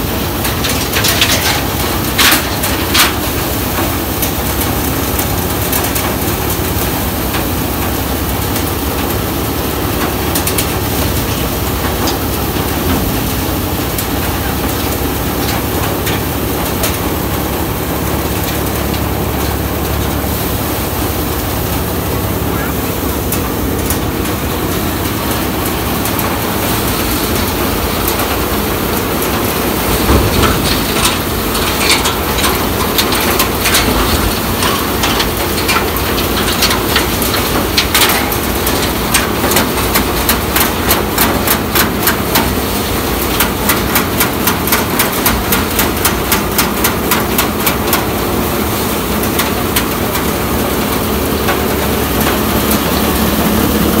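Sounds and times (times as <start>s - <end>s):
tractor-driven thresher running: 0.0s - 54.0s
sharp clicks and knocks: 23.3s - 42.6s.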